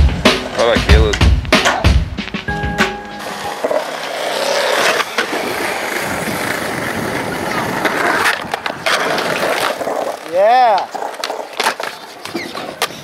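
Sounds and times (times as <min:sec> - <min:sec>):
music track: 0:00.0 - 0:04.1
skateboard wheels rolling on concrete: 0:00.0 - 0:13.0.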